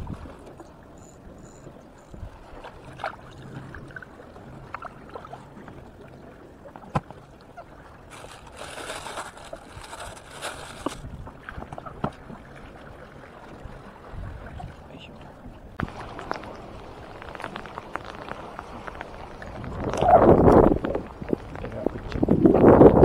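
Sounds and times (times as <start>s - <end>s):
water lapping against concrete: 2.0s - 23.0s
plastic bag rustling: 8.1s - 11.1s.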